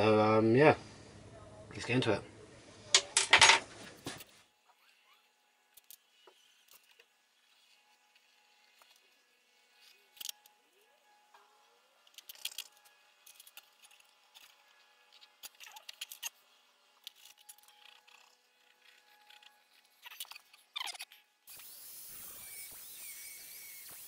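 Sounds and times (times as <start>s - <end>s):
steel pieces clicking and scraping: 12.0s - 16.4s.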